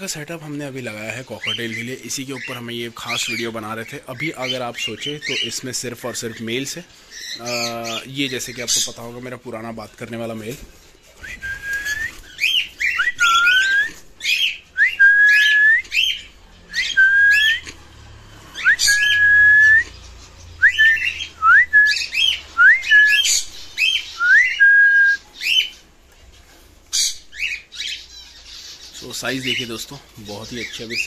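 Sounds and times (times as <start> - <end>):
cockatiel whistling: 11.2 - 17.6, 18.6 - 19.9, 20.6 - 25.7.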